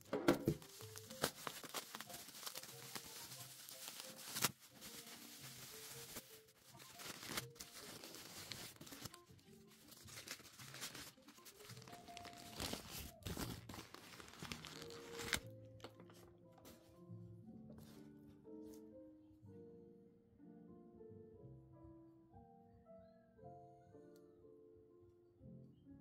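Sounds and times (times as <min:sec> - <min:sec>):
plastic wrap and newspaper crinkling: 0:00.0 - 0:16.2
soft background music: 0:00.0 - 0:26.0.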